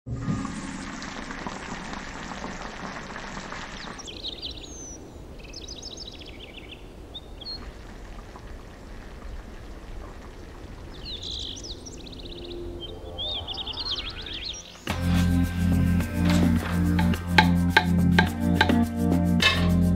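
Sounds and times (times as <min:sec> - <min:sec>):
stock bubbling in a frying pan: 0:00.1 - 0:04.1
birds chirping: 0:03.7 - 0:08.4, 0:09.7 - 0:18.8.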